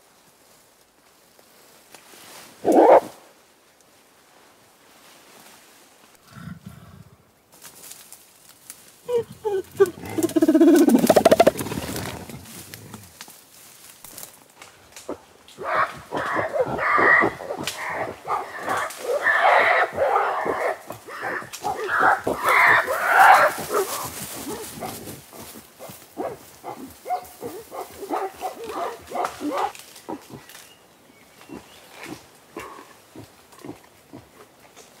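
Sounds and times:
gorilla grunting: 9.1 - 13.1, 15.1 - 30.5, 31.5 - 34.5.

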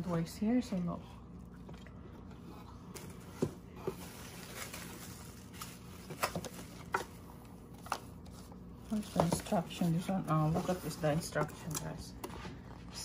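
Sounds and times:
bubble wrap rustling: 3.0 - 11.8.

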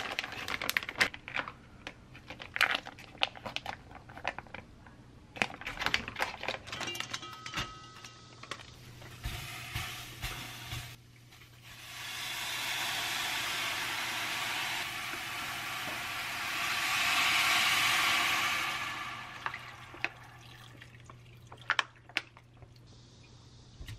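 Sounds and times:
plastic packaging crinkling: 0.0 - 4.7, 5.4 - 7.2
broth pouring into pot: 11.6 - 21.7.

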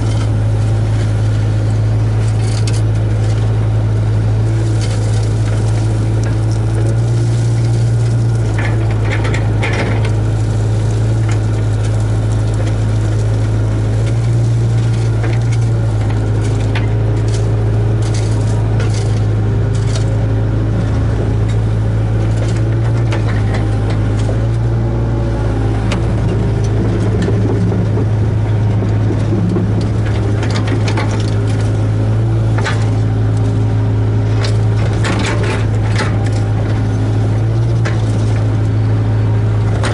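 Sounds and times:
excavator diesel engine drone: 0.0 - 39.9
knocks and scrapes: 14.0 - 24.8, 25.6 - 33.6, 34.3 - 38.7.

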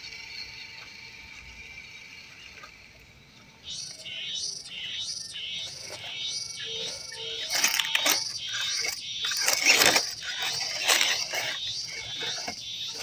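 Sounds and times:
toy crawler clattering over rocks: 5.6 - 13.0.

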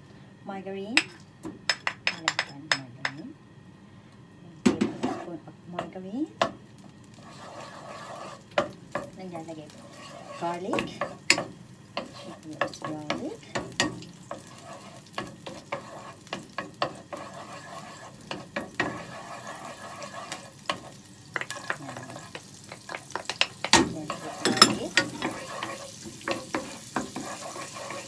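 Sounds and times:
garlic sizzling in a pan: 4.8 - 28.0
wooden spatula clicks and scrapes: 7.2 - 28.0.

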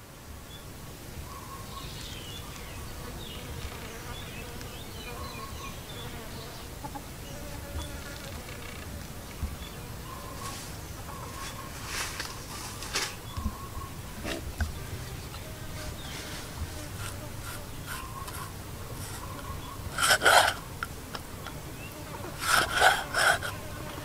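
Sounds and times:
insects buzzing: 0.0 - 24.0.

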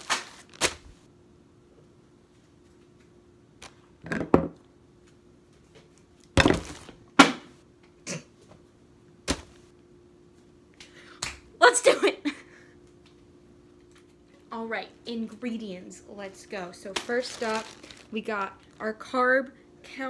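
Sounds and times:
groceries thumping on countertop: 6.4 - 7.5.

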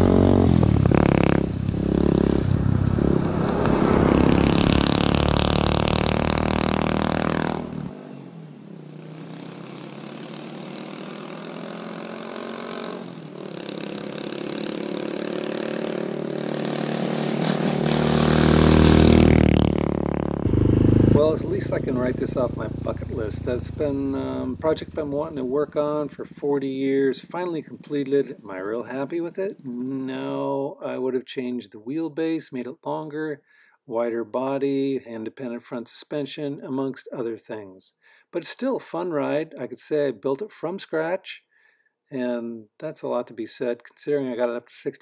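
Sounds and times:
trike engine passing by: 0.0 - 28.4.

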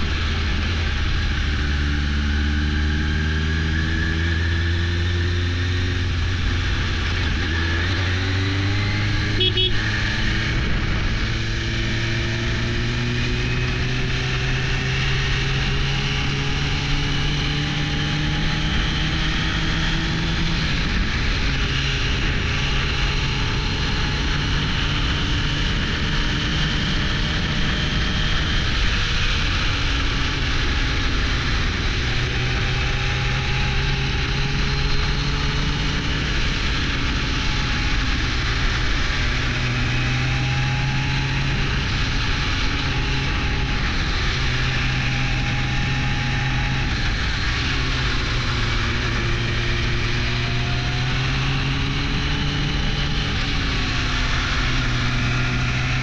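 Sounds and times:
motorcycle engine cruising: 0.0 - 56.0
wind noise: 0.0 - 56.0.

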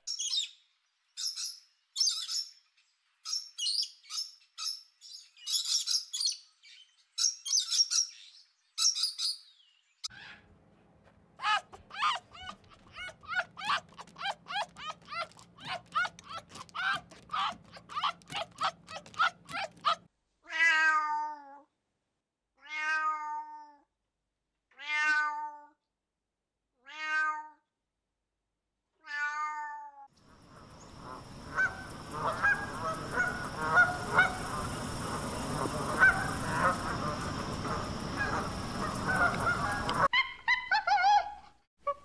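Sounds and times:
chimpanzee calling: 11.4 - 20.1, 31.0 - 42.0
fox whining calls: 11.4 - 20.1, 31.1 - 40.2
waterbirds honking and calling: 11.4 - 20.1, 30.4 - 40.1
steady high whine: 30.3 - 40.1.

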